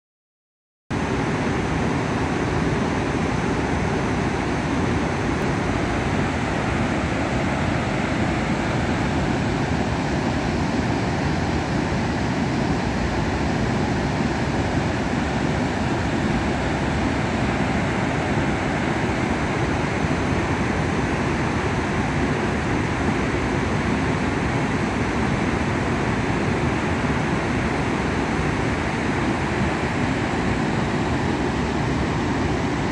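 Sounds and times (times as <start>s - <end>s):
water rushing down spillway: 1.0s - 32.9s.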